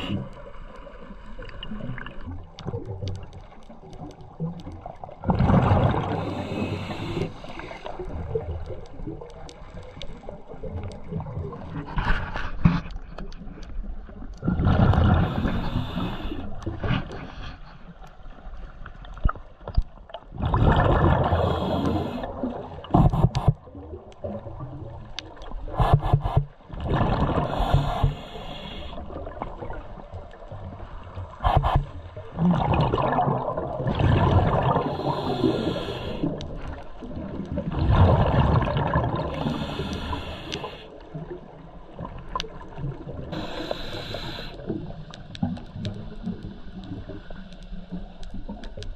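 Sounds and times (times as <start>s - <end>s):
scuba regulator bubbling exhalations: 5.2s - 8.8s, 14.4s - 16.8s, 20.3s - 24.9s, 25.7s - 29.4s, 31.4s - 40.9s.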